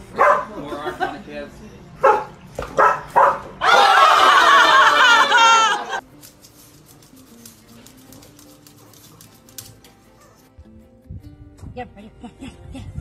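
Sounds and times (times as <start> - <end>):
dog barking: 0.1 - 0.6, 2.0 - 3.6
people laughing and shrieking: 3.6 - 6.0.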